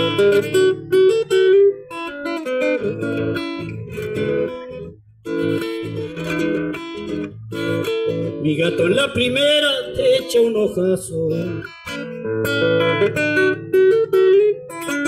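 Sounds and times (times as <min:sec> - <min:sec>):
acoustic guitar playing: 0:00.0 - 0:15.0.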